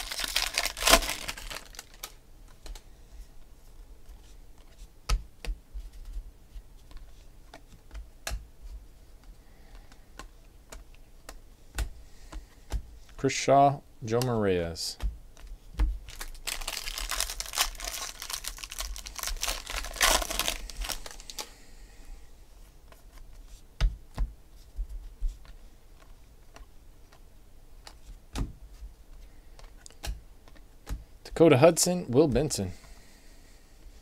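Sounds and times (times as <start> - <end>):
cards shuffling and clicking: 0.0 - 2.8, 15.0 - 21.5.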